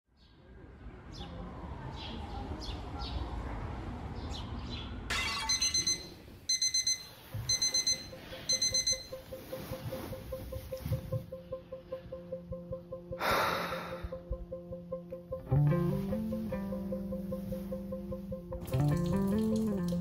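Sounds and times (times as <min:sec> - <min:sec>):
alarm clock beeping: 0:05.3 - 0:10.8.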